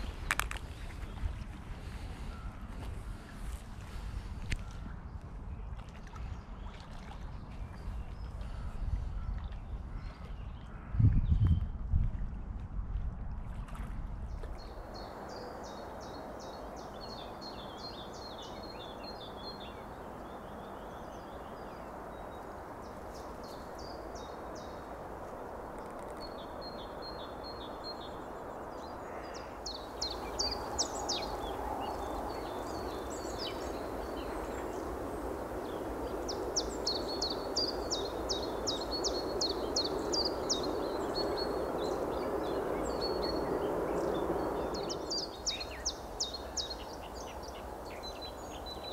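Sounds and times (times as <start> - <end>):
songbirds chirping and trilling: 14.3 - 48.9.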